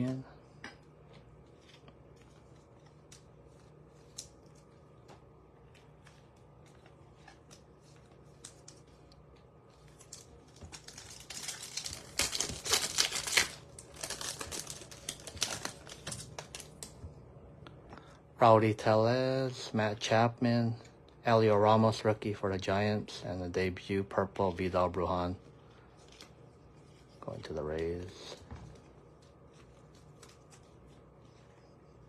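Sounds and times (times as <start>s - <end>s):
foil wrapper crinkling and tearing: 9.8s - 17.0s, 29.1s - 31.5s.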